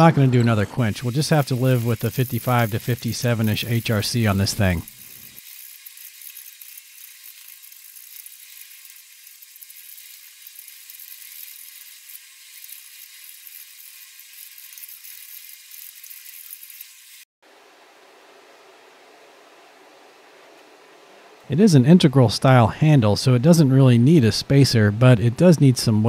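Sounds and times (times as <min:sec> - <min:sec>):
drill bit boring into wood: 0:00.8 - 0:17.2.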